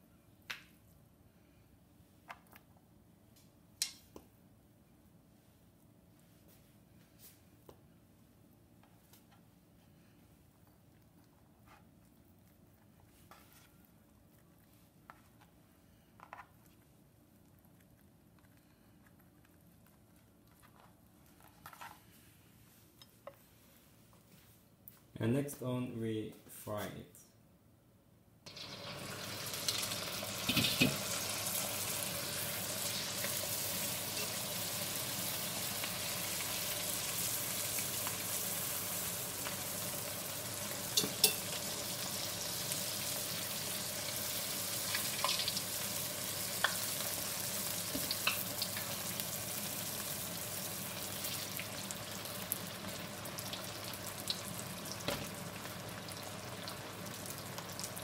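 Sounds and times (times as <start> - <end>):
oil sizzling: 28.5 - 58.0.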